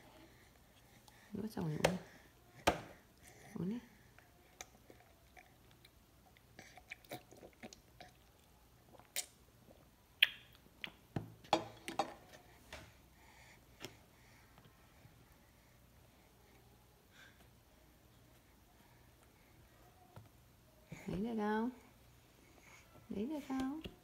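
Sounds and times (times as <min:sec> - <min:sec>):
baby mouth clicks and smacks: 0:10.2 - 0:11.0.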